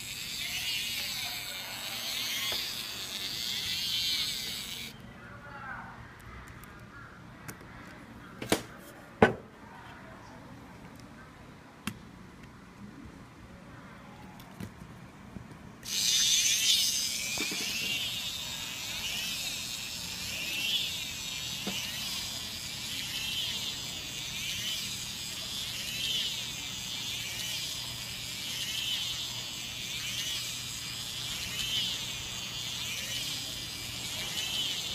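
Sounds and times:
electric motor and gearbox whirring: 0:00.0 - 0:05.0, 0:15.8 - 0:34.9.

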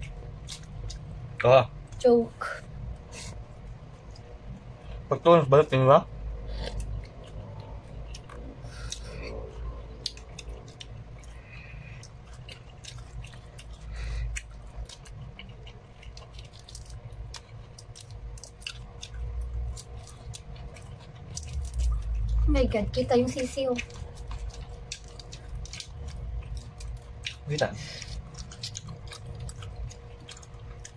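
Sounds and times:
chewing and wet mouth sounds: 0:00.0 - 0:30.9.

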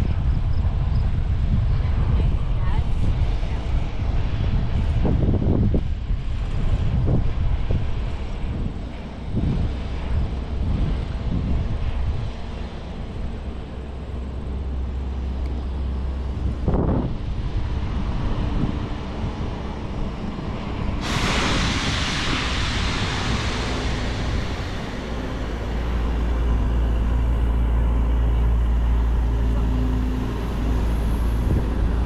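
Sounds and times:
distant vehicle traffic rumble: 0:00.0 - 0:32.0
wind on microphone: 0:00.0 - 0:32.0
loud hiss: 0:19.3 - 0:32.0.

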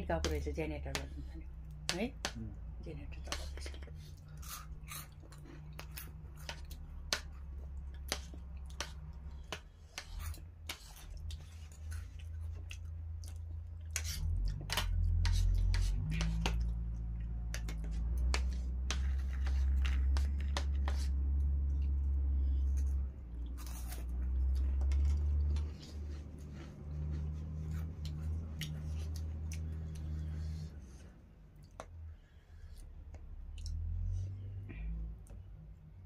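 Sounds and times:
chewing: 0:03.3 - 0:09.4, 0:10.0 - 0:31.0, 0:32.6 - 0:34.0.

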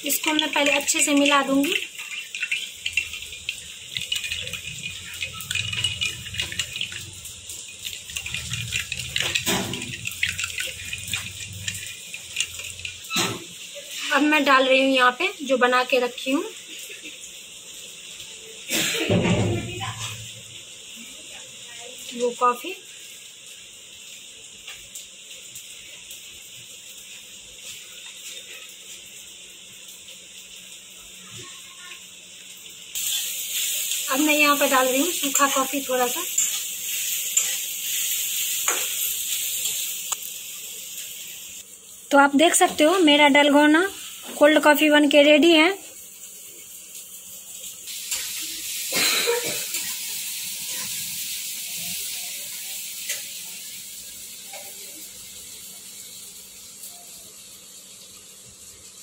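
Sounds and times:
steady hiss: 0:00.0 - 0:59.0
liquid swirling in mug: 0:01.8 - 0:13.1
spoon clinking against mug: 0:02.0 - 0:13.3.

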